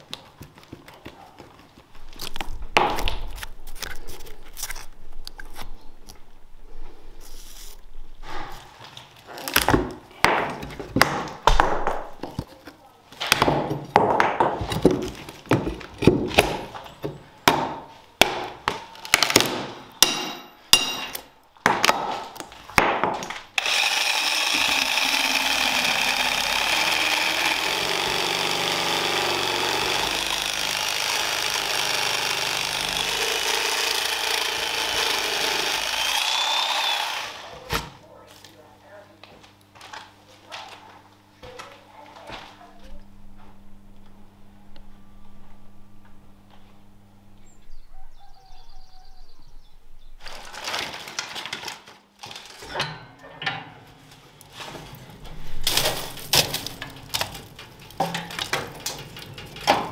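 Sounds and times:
power saw cutting: 23.5s - 37.6s.

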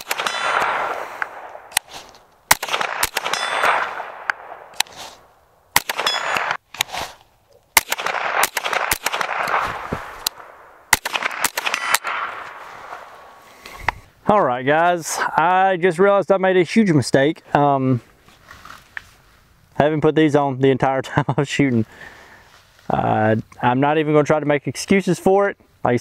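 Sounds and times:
rifle shots with echo: 0.0s - 6.9s, 7.8s - 13.4s
metallic pings of steel target: 2.8s - 4.4s, 5.9s - 6.6s.

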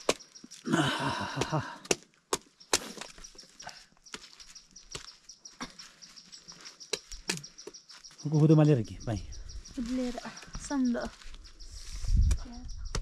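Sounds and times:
knife chopping wood: 0.0s - 0.5s, 1.3s - 3.3s.

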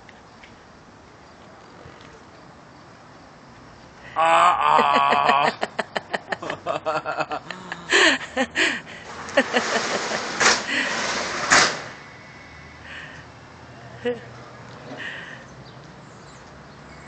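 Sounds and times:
man laughing: 4.2s - 10.9s.

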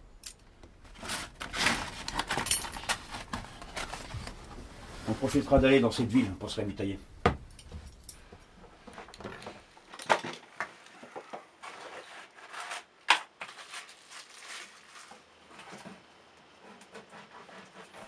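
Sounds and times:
packaging rustling: 0.8s - 4.7s, 13.4s - 15.3s
knocks on wooden table: 7.2s - 7.4s.

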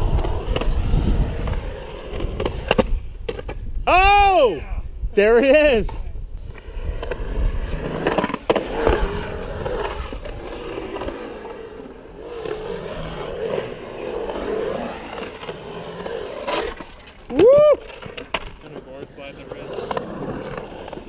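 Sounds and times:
skateboard wheels rolling on concrete: 0.0s - 21.0s
skateboard wheel squeal: 6.6s - 18.5s.

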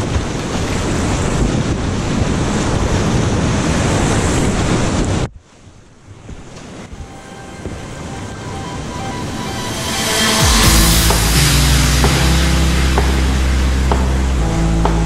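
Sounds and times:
wind buffeting microphone: 0.0s - 8.2s
faint music: 6.9s - 15.0s.

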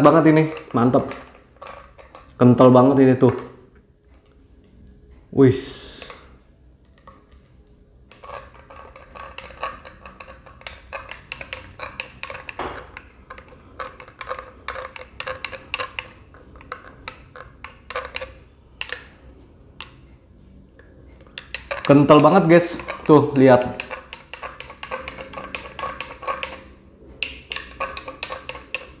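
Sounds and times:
spoon clinking in glass mug: 8.1s - 12.6s, 21.4s - 29.0s.

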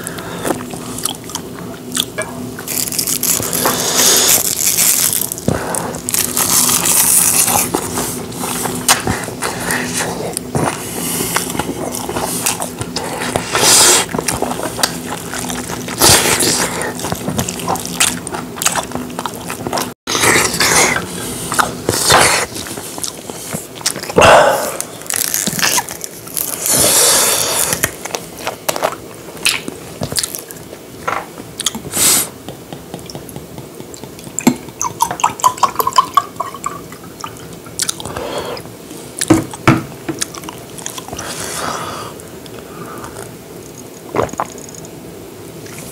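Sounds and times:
man chewing and slurping: 0.0s - 30.4s.

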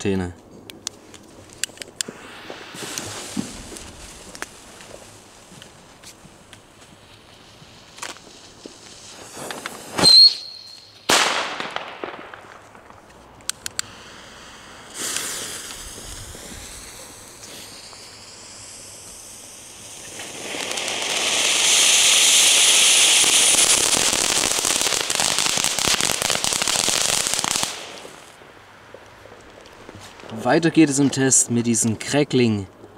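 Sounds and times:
firework fountain hissing: 2.0s - 12.9s, 13.5s - 28.6s
firecracker bang: 2.1s - 4.4s, 8.0s - 13.0s, 13.9s - 28.4s
rising firework whistle: 7.1s - 12.8s, 13.8s - 28.4s.

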